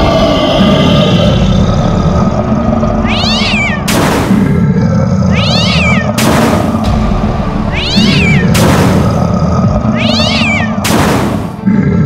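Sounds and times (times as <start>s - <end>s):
cartoon cat meowing: 3.0s - 3.9s, 5.3s - 6.2s, 7.7s - 8.6s, 9.9s - 10.8s
loud background music: 5.8s - 12.0s.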